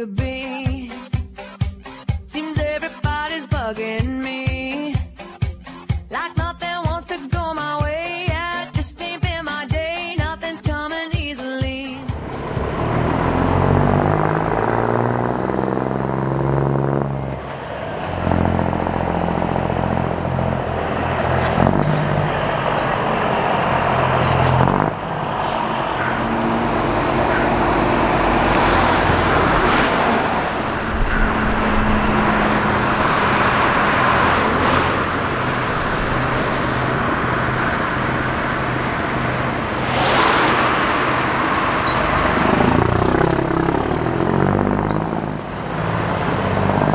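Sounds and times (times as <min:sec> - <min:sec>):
diesel truck accelerating: 0:11.8 - 0:46.9.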